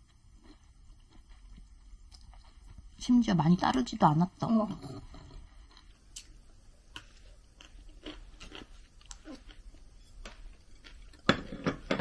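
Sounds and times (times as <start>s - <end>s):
person chewing food: 0.0s - 2.9s, 5.0s - 11.7s.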